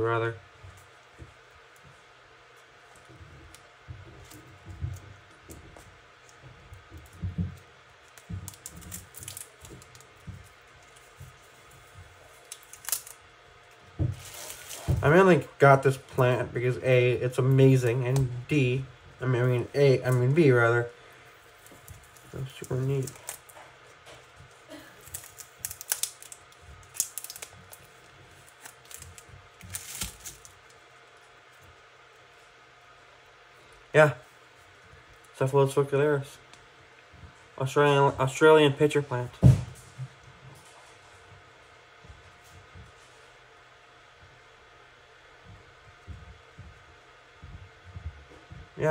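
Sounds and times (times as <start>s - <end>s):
hands handling packaging: 2.8s - 15.4s, 21.2s - 30.8s.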